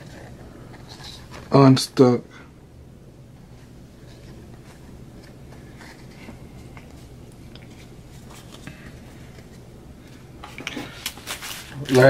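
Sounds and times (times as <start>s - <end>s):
low steady hum: 0.0s - 12.0s
trading cards rustling and tapping: 4.0s - 12.0s.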